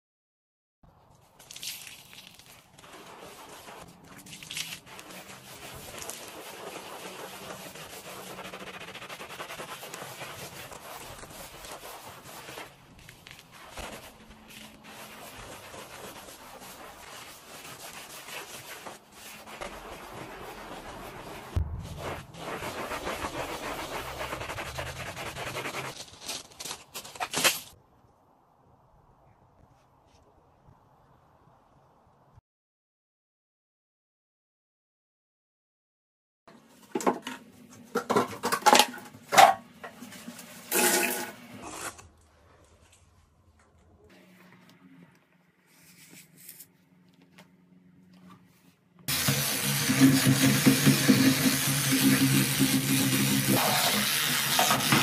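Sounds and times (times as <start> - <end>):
water splashing on tiles: 1.4 - 7.0, 49.1 - 55.0
wet sponge scrubbing tiles: 1.5 - 26.7, 49.1 - 55.0.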